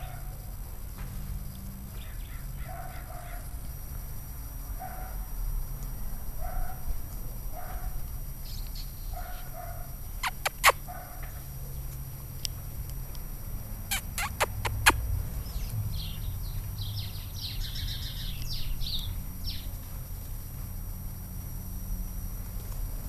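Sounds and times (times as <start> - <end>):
birds chirping: 1.9 - 3.6, 7.6 - 12.0, 13.8 - 19.8
puppy chewing wooden stick: 14.0 - 15.0.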